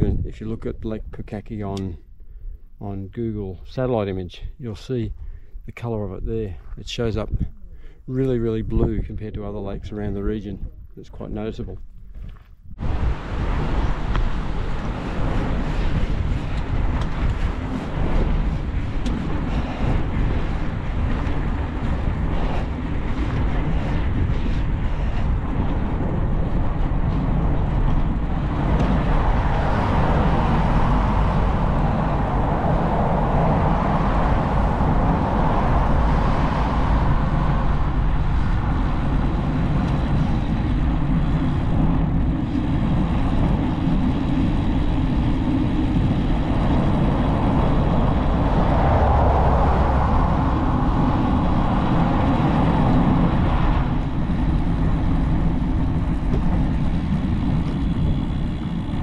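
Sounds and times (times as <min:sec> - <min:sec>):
wind rumbling on microphone: 0:00.0 - 0:59.0
cars passing: 0:28.1 - 0:41.3, 0:45.9 - 0:59.0.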